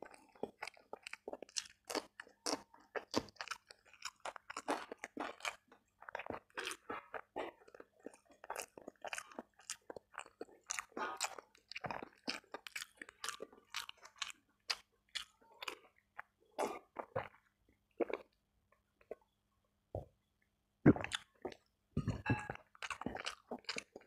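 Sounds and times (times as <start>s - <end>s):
chewing and crunching food: 0.0s - 19.4s, 20.0s - 24.0s
person drinking: 20.9s - 23.8s
wet mouth sounds: 20.9s - 24.0s.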